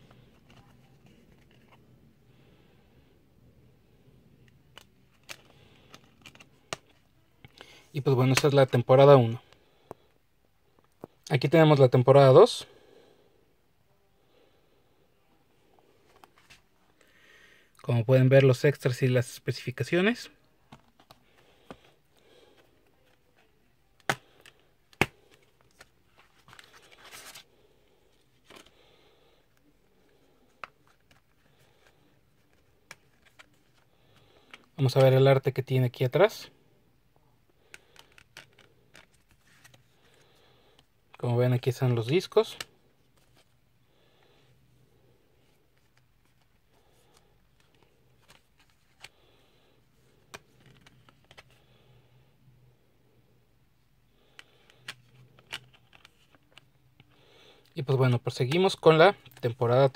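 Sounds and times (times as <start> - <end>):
plastic disc case clicks: 24.0 - 26.8.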